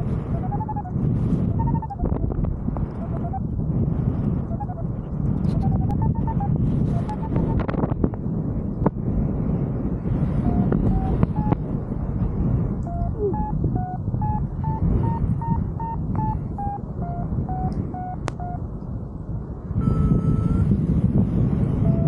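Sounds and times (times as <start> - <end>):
variometer beeping: 0.0 - 3.6, 4.2 - 7.9, 10.4 - 11.6, 12.8 - 18.7, 19.8 - 20.7, 21.8 - 22.0
long steady tone: 0.0 - 8.6, 9.6 - 22.0
wind on microphone: 0.0 - 22.0.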